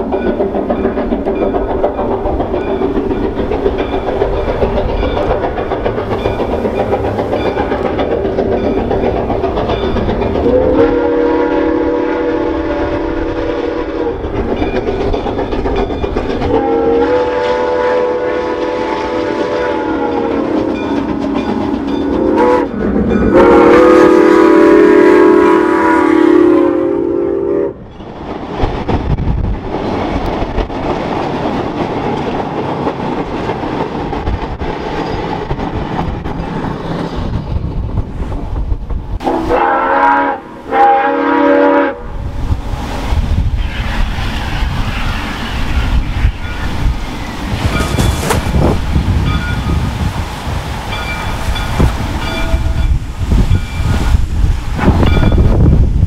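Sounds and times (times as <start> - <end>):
train rumble and wheel clatter: 0.0 - 56.0
steam locomotive chime whistle: 10.4 - 14.2, 16.5 - 27.9, 39.2 - 42.2, 50.9 - 54.2.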